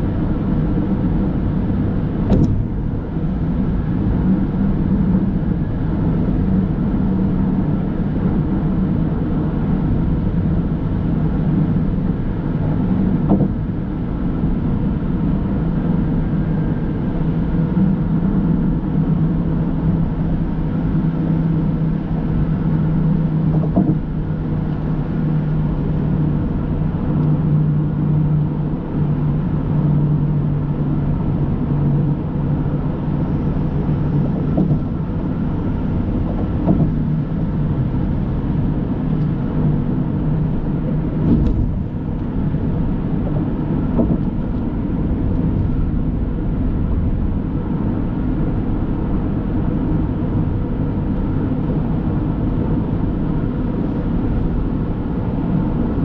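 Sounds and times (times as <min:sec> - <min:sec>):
car road and engine hum: 0:00.0 - 0:56.0.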